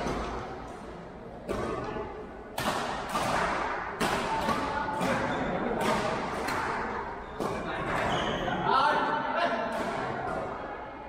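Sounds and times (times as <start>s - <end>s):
rackets hitting shuttlecock: 1.4s - 8.2s, 9.6s - 10.6s.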